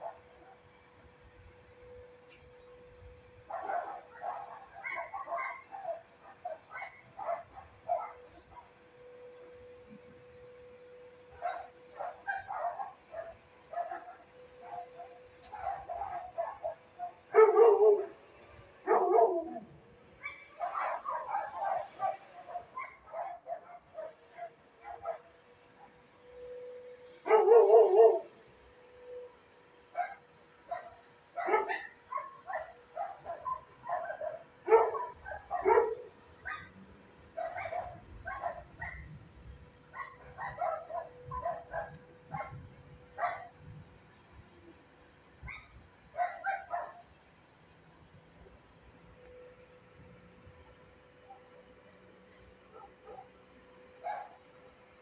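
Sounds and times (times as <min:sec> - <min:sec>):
dogs barking: 0:00.0 - 0:00.7, 0:03.4 - 0:08.8, 0:11.3 - 0:26.0, 0:27.1 - 0:28.4, 0:29.9 - 0:39.2, 0:39.9 - 0:43.6, 0:45.4 - 0:47.2, 0:52.6 - 0:54.6.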